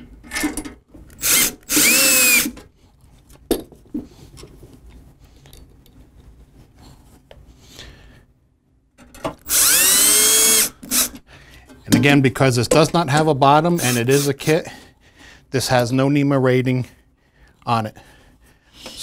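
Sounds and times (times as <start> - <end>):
cordless drill whining: 1.2 - 2.6, 9.4 - 11.2, 13.8 - 14.4.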